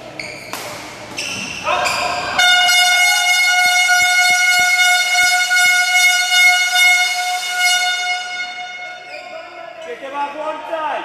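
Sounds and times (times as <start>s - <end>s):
loud horn long note: 2.4s - 9.0s.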